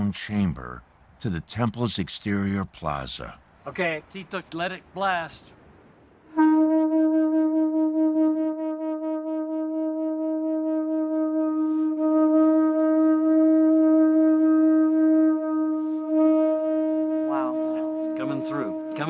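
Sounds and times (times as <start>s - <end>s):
conch shell trumpet low note: 6.3s - 19.0s.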